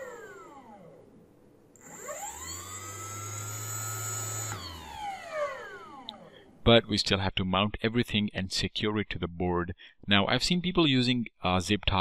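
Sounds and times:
electric motor whine: 0.0 - 1.1, 1.8 - 6.3.

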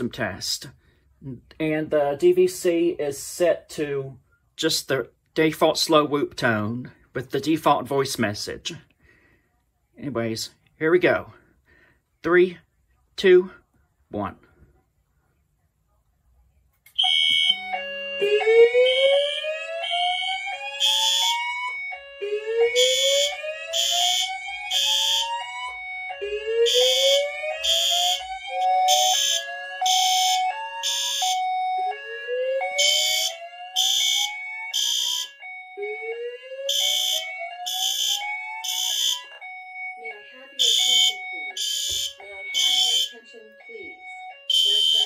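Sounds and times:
fire alarm horn blasts: 16.9 - 45.0
alarm whoop tone: 17.0 - 45.0.

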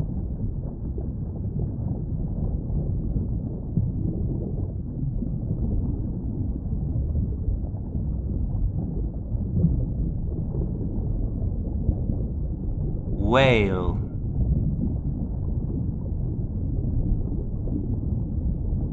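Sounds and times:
underwater rumble of moving water: 14.5 - 18.9.

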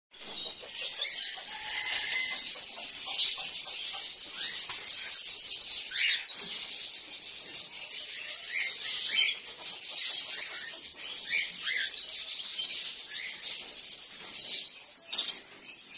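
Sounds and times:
cockatiels chirping and calling: 0.2 - 15.9.

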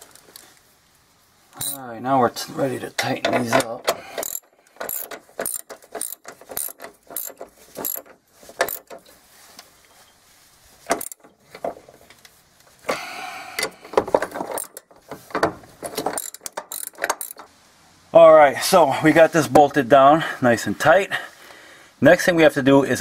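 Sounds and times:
socket ratchet clicking: 4.2 - 9.0, 10.9 - 11.2, 14.5 - 14.9, 16.0 - 17.5.

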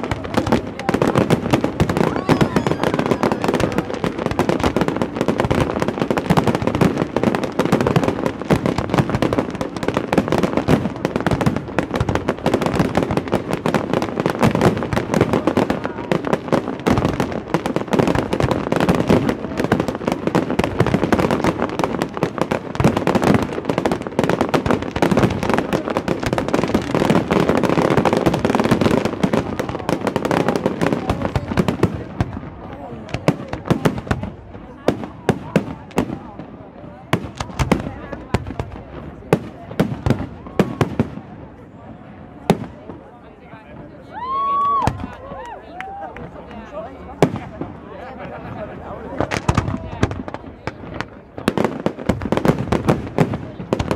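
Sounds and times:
fireworks bangs and crackling: 0.0 - 53.9.

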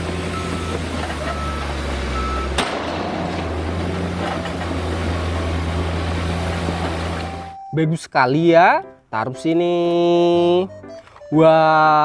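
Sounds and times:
sand dumping: 0.0 - 7.6
diesel truck engine running: 0.0 - 7.8
reversing alarm beeps: 0.3 - 2.6, 7.2 - 7.8.

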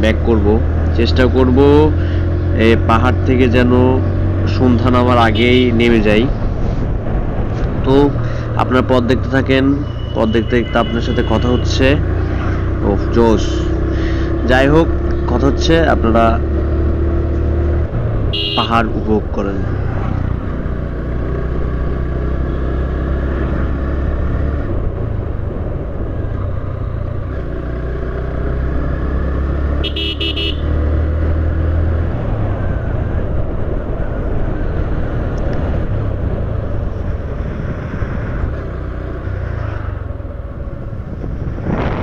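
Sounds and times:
road noise: 0.0 - 42.0
short horn toot: 18.4 - 18.7, 29.8 - 30.6
motorcycle engine running: 20.2 - 31.2.

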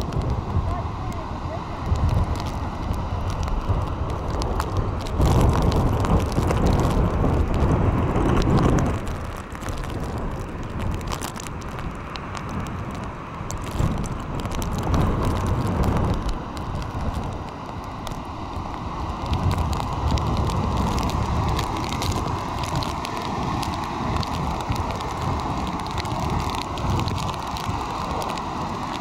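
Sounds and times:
gusty wind buffeting microphone: 0.0 - 29.0.

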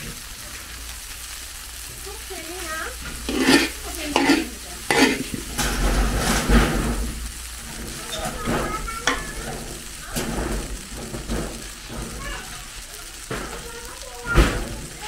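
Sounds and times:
rice sizzling: 0.0 - 15.0
metal ladle scraping a wok: 3.1 - 6.5.

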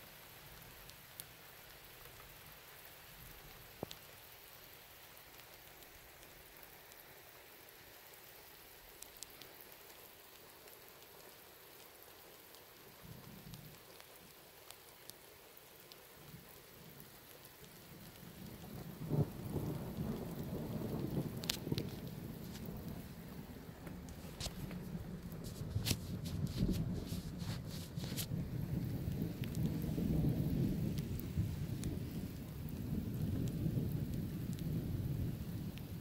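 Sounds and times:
steady rain: 0.0 - 36.0
distant thunder rumbling: 16.3 - 36.0.

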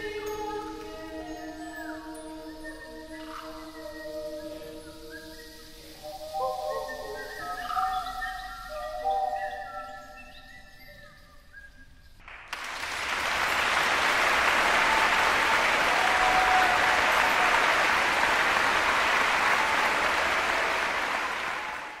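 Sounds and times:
audience applauding: 12.2 - 22.0.

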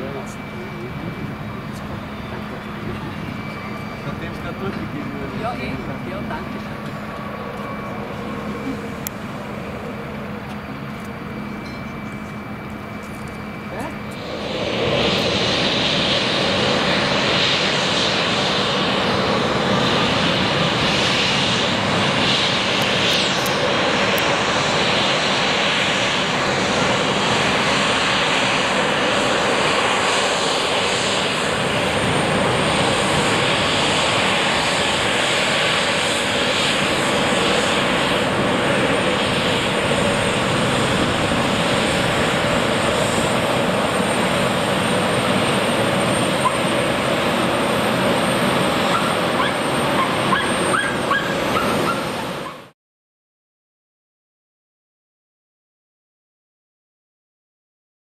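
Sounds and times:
jet engine whine: 0.0 - 52.8
thin high-pitched tone: 11.5 - 12.4.

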